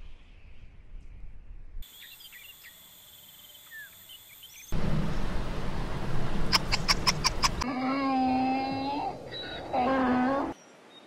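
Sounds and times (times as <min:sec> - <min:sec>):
bird chirps: 0:01.8 - 0:04.8, 0:06.5 - 0:07.6
insects droning: 0:01.8 - 0:07.6
low rumble: 0:04.7 - 0:07.6.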